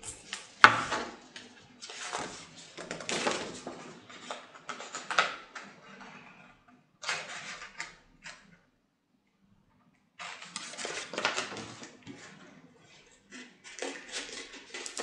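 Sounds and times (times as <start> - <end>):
paper rustling and crackling: 0.0 - 8.5, 10.2 - 15.0.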